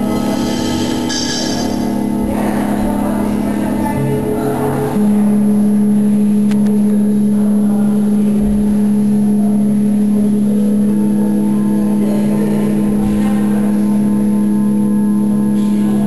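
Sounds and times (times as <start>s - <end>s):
singing bowls ringing: 0.0s - 4.1s
steady low hum: 0.0s - 16.0s.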